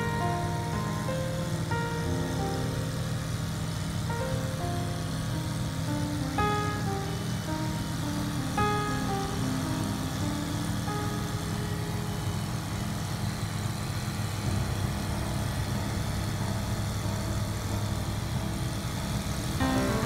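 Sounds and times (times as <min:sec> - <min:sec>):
light aircraft engine drone: 0:00.0 - 0:20.0.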